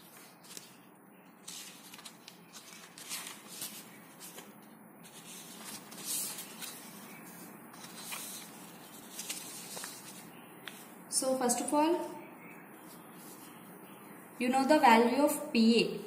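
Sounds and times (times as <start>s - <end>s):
paper rustling: 0.0s - 10.9s.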